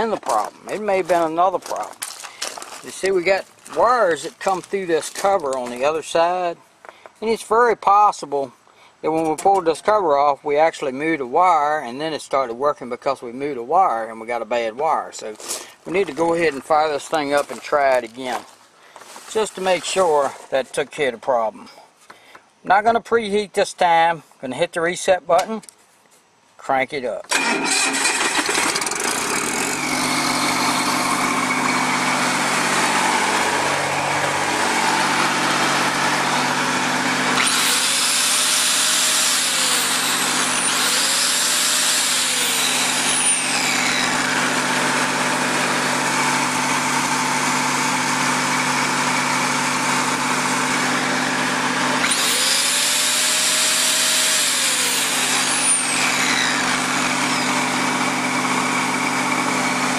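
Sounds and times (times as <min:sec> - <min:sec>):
angle grinder whining: 0:27.3 - 0:59.9
diesel engine running steadily: 0:28.3 - 0:41.0, 0:42.7 - 0:54.2, 0:54.8 - 0:59.9.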